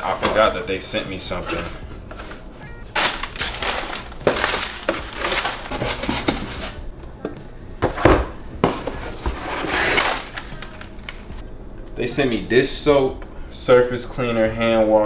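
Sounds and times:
packing paper crinkling: 1.6s - 6.9s, 8.9s - 11.4s.

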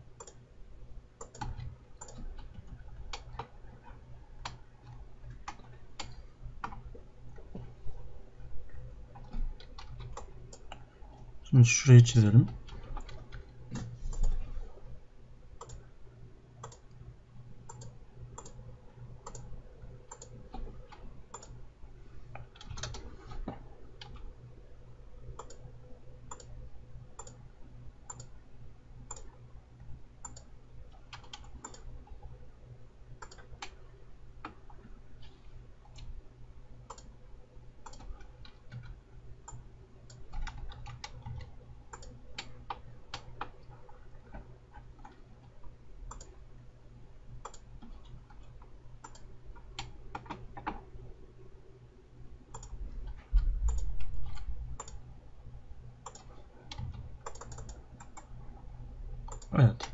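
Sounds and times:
low steady hum: 0.0s - 59.9s
computer mouse clicks: 0.2s - 0.4s, 1.2s - 7.7s, 9.1s - 11.2s, 12.5s - 14.4s, 15.6s - 15.8s, 16.6s - 17.0s, 17.6s - 18.6s, 19.2s - 21.6s, 22.3s - 24.3s, 25.4s - 25.7s, 26.3s - 26.6s, 27.2s - 27.4s, 28.0s - 28.4s, 29.1s - 29.4s, 30.2s - 32.2s, 33.2s - 33.8s, 36.8s - 37.2s, 37.8s - 46.4s, 47.4s - 50.8s, 52.5s - 55.0s, 56.0s - 58.4s, 59.2s - 59.9s
keyboard keystrokes: 56.0s - 58.3s.

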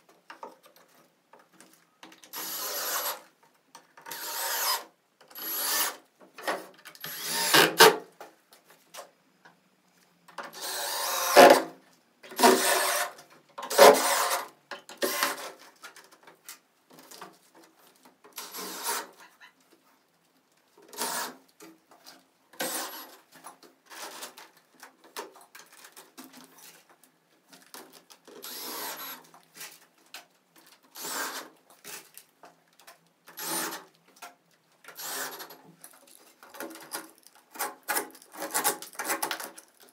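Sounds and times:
woodworking tool on wood: 2.3s - 3.2s, 4.1s - 6.0s, 7.0s - 8.0s, 10.5s - 11.7s, 12.3s - 15.6s, 18.4s - 19.2s, 34.9s - 35.6s.

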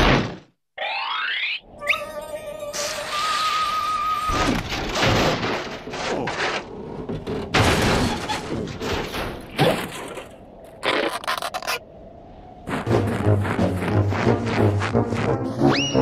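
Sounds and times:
wavering whistle-like tone: 1.7s - 4.3s, 15.6s - 16.0s
cartoon rushes and thuds: 12.7s - 16.0s.

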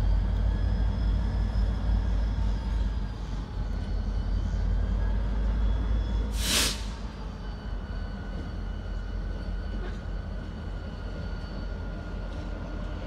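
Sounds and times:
locomotive engine rumble: 0.0s - 13.0s
short loud air hiss: 6.4s - 7.0s.

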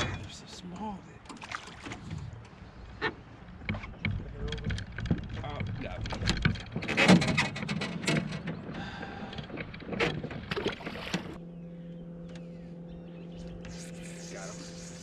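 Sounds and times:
knocks and clatter in boat: 0.0s - 11.4s
steady low hum: 0.0s - 15.0s.

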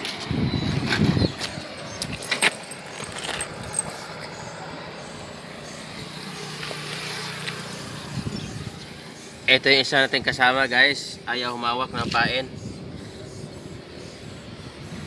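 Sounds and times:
passing vehicle hum: 0.0s - 11.3s
gear clicking and rattling: 0.9s - 4.6s.

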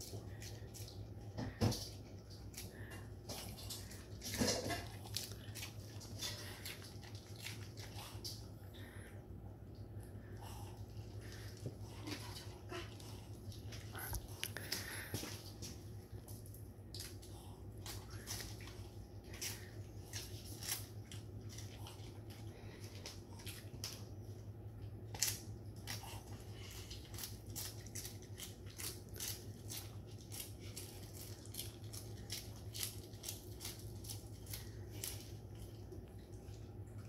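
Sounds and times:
dog crunching lettuce: 0.0s - 9.0s, 10.1s - 37.0s
faint low hum: 0.0s - 37.0s.

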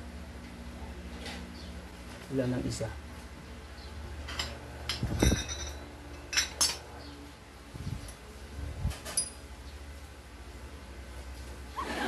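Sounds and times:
small metal parts clinking: 4.3s - 6.8s, 8.9s - 9.4s.

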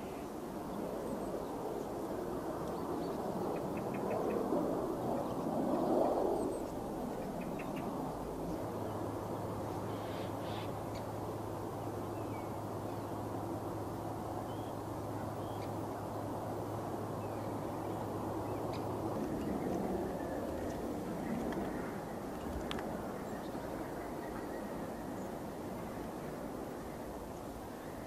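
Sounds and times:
bird calls: 9.9s - 11.1s.

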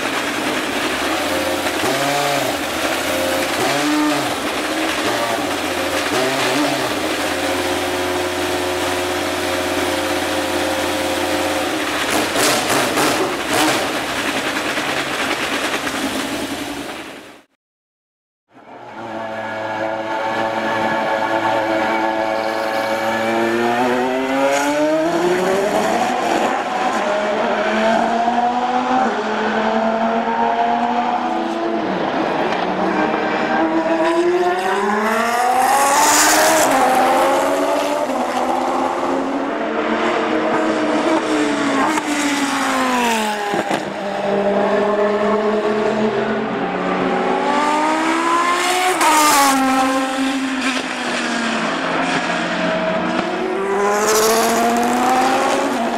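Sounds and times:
racing engine revving and shifting: 0.9s - 14.0s, 18.6s - 55.9s.

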